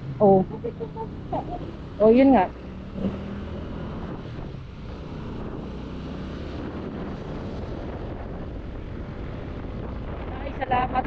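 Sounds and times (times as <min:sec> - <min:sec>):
scooter engine running: 0:00.0 - 0:02.8
wind on microphone: 0:00.4 - 0:11.0.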